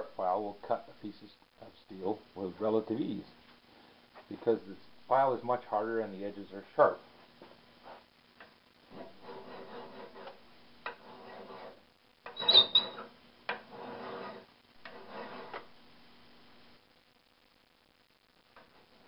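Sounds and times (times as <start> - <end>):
hand file cutting steel: 8.9 - 11.8.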